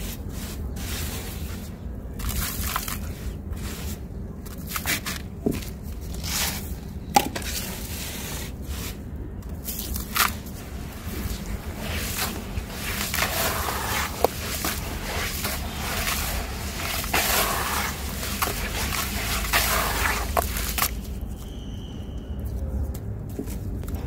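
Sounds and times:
hands squishing wet grit: 0.0s - 24.0s.

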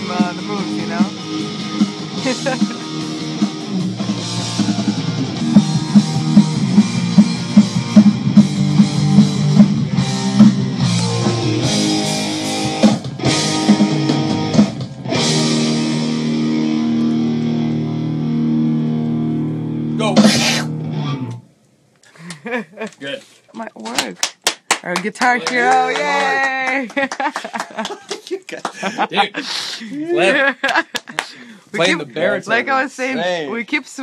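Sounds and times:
drums: 0.0s - 17.3s, 20.0s - 21.4s
distorted guitar power chords: 0.0s - 21.5s.

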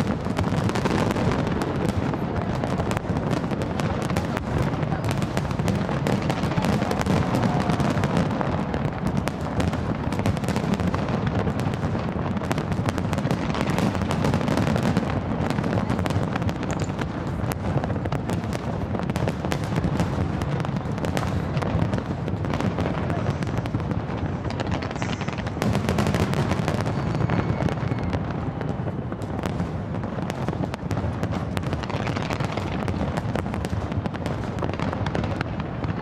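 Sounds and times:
firework shell bursts and crackling: 0.0s - 36.0s.

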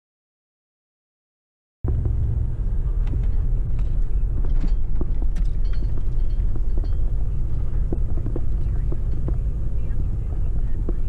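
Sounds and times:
vehicle cabin rumble: 1.8s - 11.0s
knocks and rattles: 3.0s - 11.0s.

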